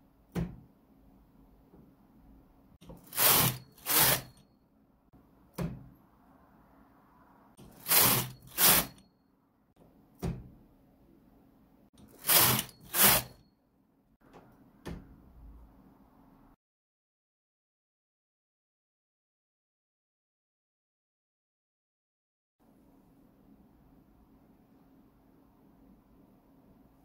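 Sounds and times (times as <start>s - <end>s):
knitting machine carriage sliding rasp: 2.8s - 4.4s, 7.6s - 9.0s, 12.0s - 13.4s.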